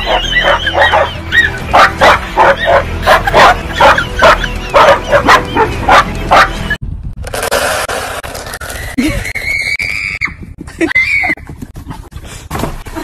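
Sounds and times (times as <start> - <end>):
dog yapping barks: 0.0 - 6.6.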